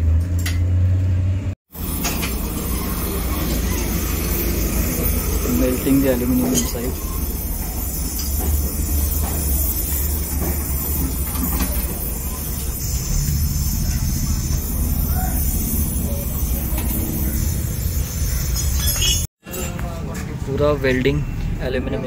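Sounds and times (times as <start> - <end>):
gas welding torch burning: 1.7 - 19.2.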